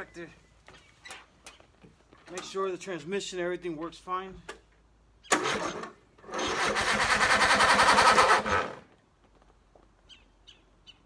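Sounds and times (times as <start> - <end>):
mower engine cranking: 5.3 - 9.0.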